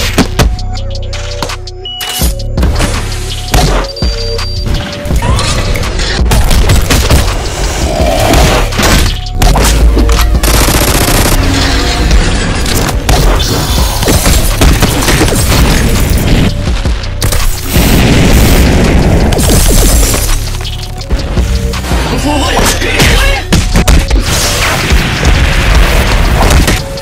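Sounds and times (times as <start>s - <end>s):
music with heavy bass: 0.0s - 27.0s
rapid volleys of hits: 5.8s - 27.0s
booming impacts: 11.3s - 20.5s.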